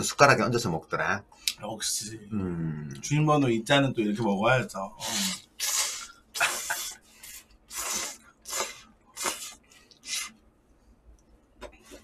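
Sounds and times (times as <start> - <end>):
noodles being slurped: 5.0 - 10.4.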